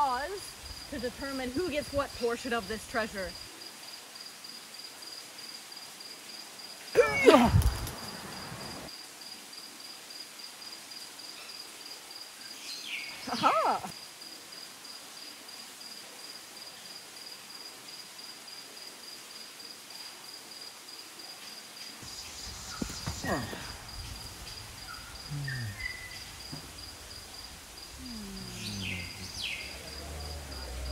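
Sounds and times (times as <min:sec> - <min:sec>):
crickets chirping: 0:00.0 - 0:30.9
loud vocal shout: 0:07.0 - 0:07.7.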